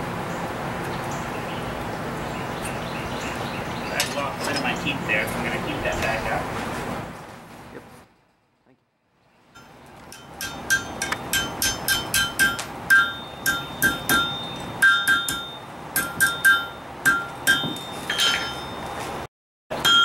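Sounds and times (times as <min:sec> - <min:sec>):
hammer striking iron on anvil: 0:09.6 - 0:18.8, 0:19.7 - 0:20.0.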